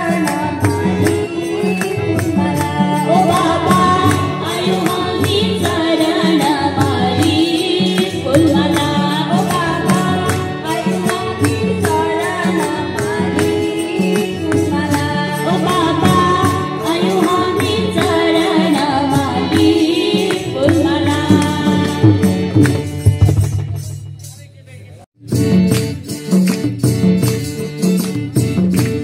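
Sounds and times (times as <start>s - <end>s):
women singing devotional song: 0.0s - 22.5s
harmonium chords: 0.0s - 24.2s
percussion steady beat: 0.0s - 29.0s.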